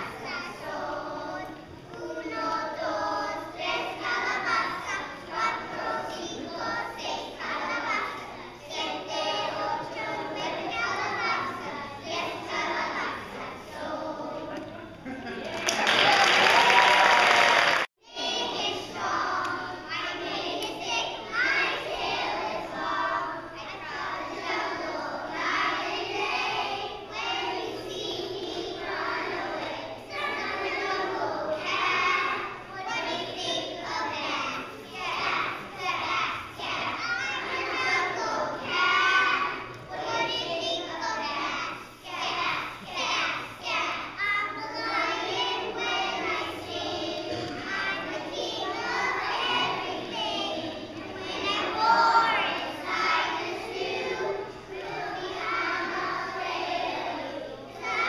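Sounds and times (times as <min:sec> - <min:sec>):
children singing in chorus: 0:00.0 - 0:14.8, 0:15.6 - 0:58.0.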